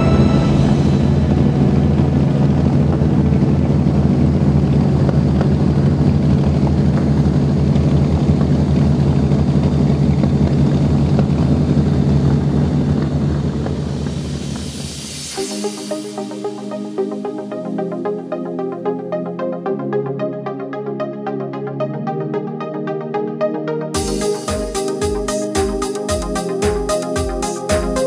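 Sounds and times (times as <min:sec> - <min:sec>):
deep engine rumble: 0:00.0 - 0:16.8.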